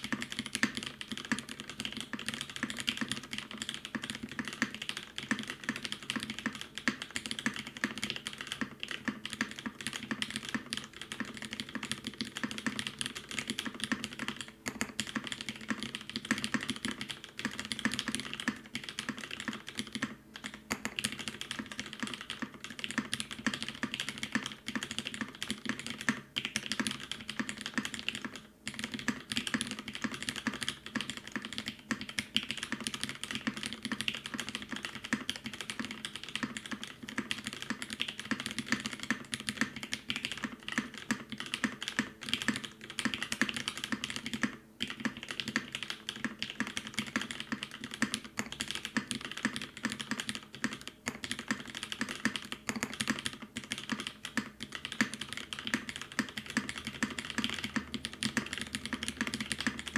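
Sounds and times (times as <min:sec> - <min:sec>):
mechanical keyboard typing: 0:00.0 - 0:59.9.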